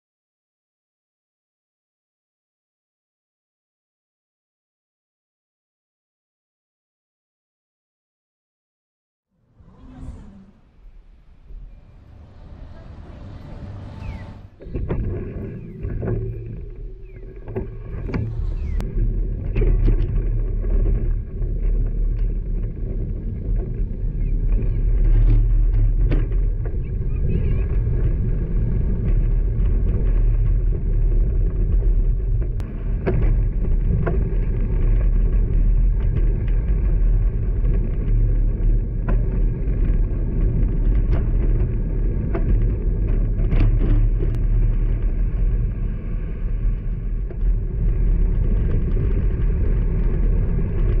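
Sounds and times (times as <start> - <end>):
passing motor traffic: 9.4 - 14.6, 18.1 - 18.8
wind and road noise: 9.4 - 51.0.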